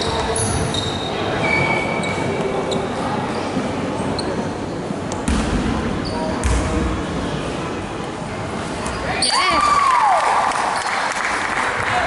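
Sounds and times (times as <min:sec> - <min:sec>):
sneakers squeaking on court: 0:00.0 - 0:04.5, 0:06.0 - 0:06.8
hall hubbub: 0:00.0 - 0:12.0
basketball bounce: 0:05.2 - 0:05.7, 0:06.4 - 0:06.8.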